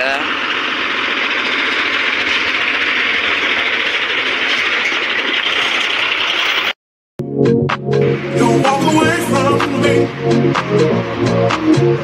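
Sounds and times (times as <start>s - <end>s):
heavy truck running: 0.0s - 6.8s.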